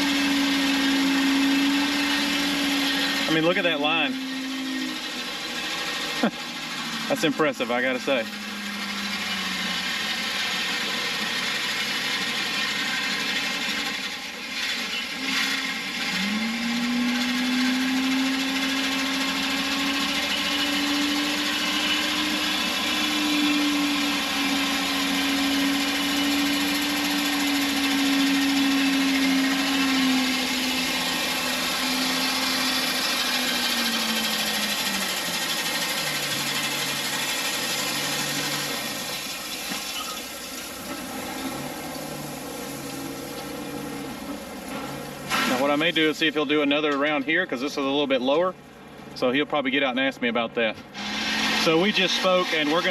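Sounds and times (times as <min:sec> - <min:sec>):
truck engine whirring: 0:00.0 - 0:52.9
gravel pouring hiss: 0:38.9 - 0:46.5.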